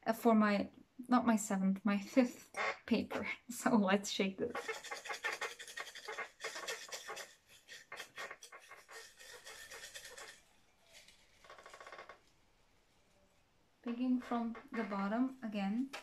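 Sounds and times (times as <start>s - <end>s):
paper slips rattling in mug: 4.5s - 11.5s.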